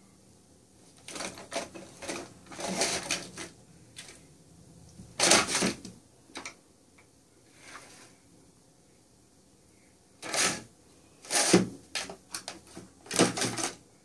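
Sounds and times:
plastic cat toy rattling: 0:01.0 - 0:03.6, 0:11.3 - 0:13.8.

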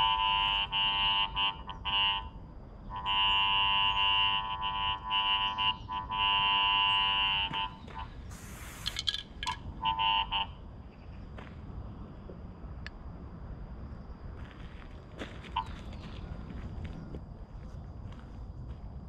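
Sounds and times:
cable locator electronic tone: 0:00.0 - 0:08.2, 0:08.8 - 0:10.6
spray paint hiss: 0:08.3 - 0:09.6.

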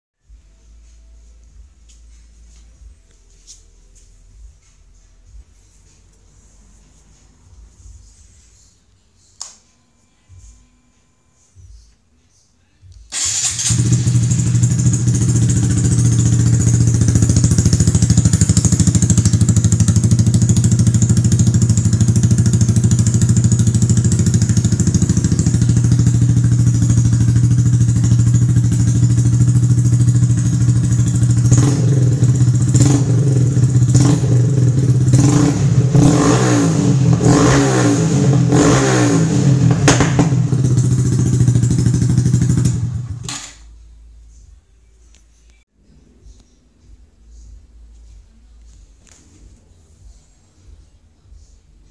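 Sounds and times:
motorcycle engine idling and revving: 0:13.1 - 0:43.9.

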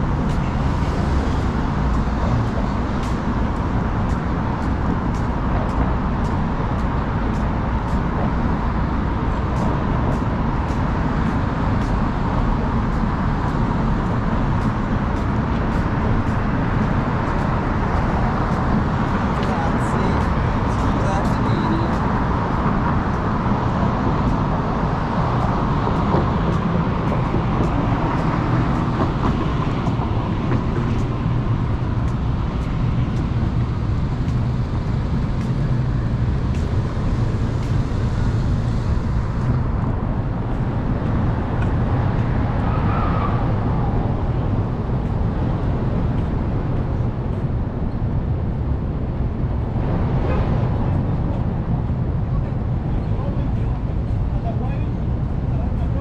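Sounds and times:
low rumble of vehicles: 0:00.0 - 0:56.0.

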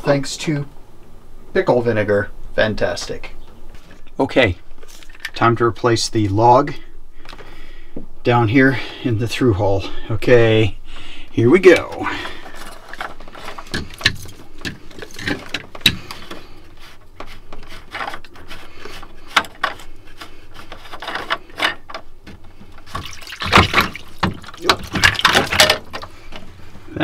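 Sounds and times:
plastic fittings clicking and knocking: 0:12.9 - 0:16.4
seawater spurting and splashing: 0:22.9 - 0:25.7.

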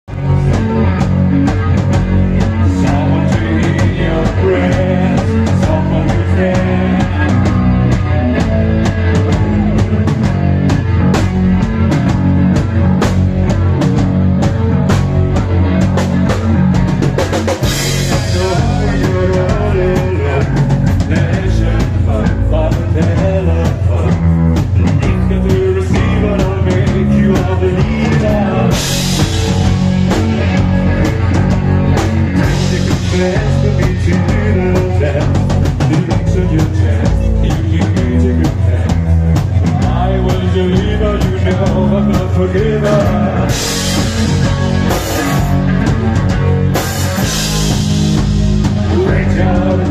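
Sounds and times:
live rock band playing: 0:00.0 - 0:49.9.

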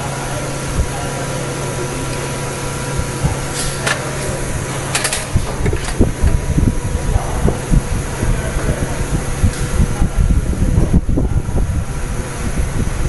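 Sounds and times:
machine hum: 0:00.0 - 0:13.0
metal parts knocking: 0:04.8 - 0:06.5.

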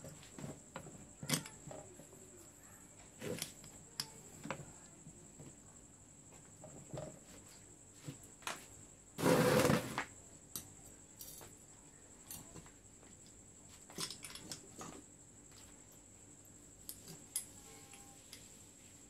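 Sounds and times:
metal parts clicking and knocking: 0:01.2 - 0:01.8, 0:14.0 - 0:15.0.

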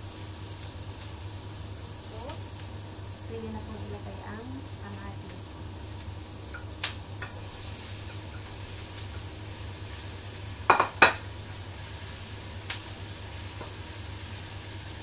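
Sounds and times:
spatula stirring in frying pan: 0:05.9 - 0:15.0.

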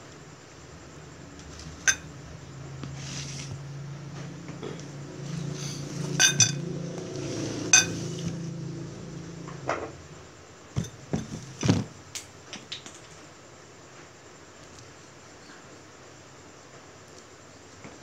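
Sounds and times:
low steady hum: 0:00.0 - 0:11.7
chopsticks clinking on dishes: 0:01.9 - 0:02.1, 0:06.2 - 0:06.6, 0:07.8 - 0:08.0.

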